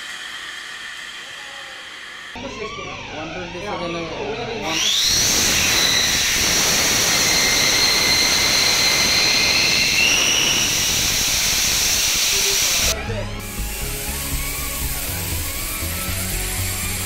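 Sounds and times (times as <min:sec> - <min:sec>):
high whistling tones: 0:02.4 - 0:13.0
gas discharging with rushing hiss: 0:04.8 - 0:17.0.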